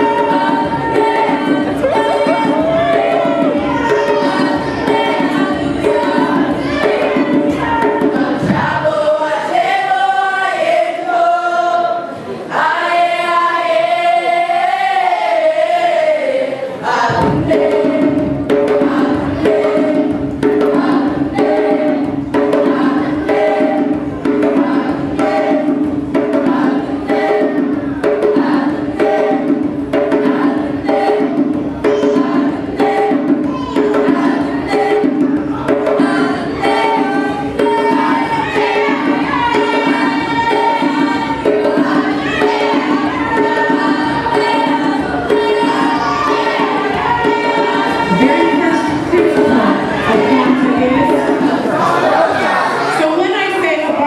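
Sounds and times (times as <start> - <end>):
steady drum beat: 0.0 - 10.8, 16.9 - 54.0
children's choir singing: 0.0 - 54.0.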